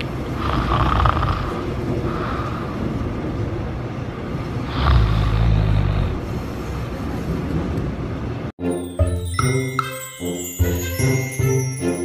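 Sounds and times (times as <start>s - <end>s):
subway train rumble: 0.0s - 8.6s.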